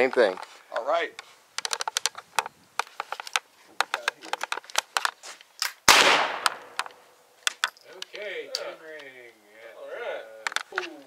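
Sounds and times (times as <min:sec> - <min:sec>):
gun handling clicks and knocks: 0:01.2 - 0:09.1, 0:10.4 - 0:11.0
shotgun shot: 0:05.9 - 0:06.8.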